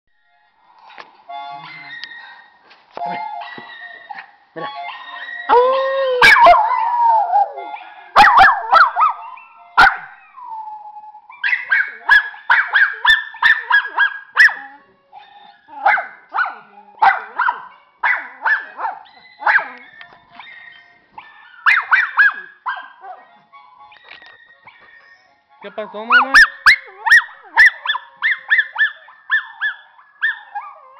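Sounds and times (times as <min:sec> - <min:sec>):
dog yelping howls: 0:04.8 - 0:23.3, 0:26.1 - 0:30.9
dog howling: 0:04.9 - 0:09.4.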